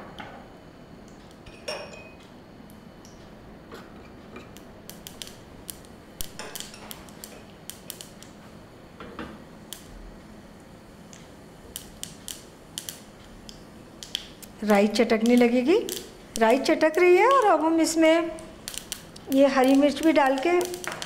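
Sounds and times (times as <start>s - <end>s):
mustard seeds popping in hot oil: 4.5s - 8.4s, 9.6s - 10.0s, 11.0s - 21.0s.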